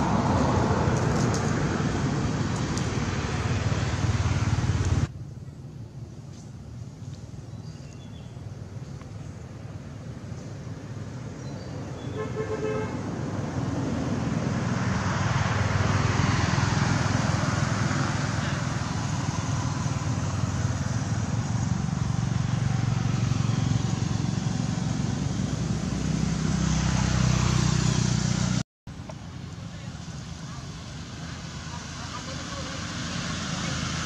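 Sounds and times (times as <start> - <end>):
vehicle engine and road noise: 0.0 - 34.0
car horn toot: 12.1 - 13.0.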